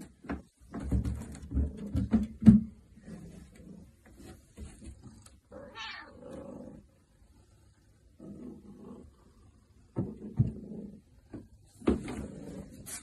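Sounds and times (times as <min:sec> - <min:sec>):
thumps on wooden stairs: 0:00.0 - 0:02.8
cat yowling and meowing: 0:05.6 - 0:06.2.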